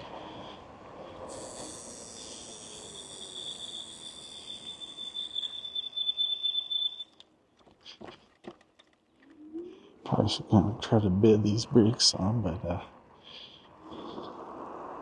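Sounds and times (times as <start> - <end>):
scooter brakes squealing: 1.3 - 7.2
faint clicks: 7.0 - 9.4.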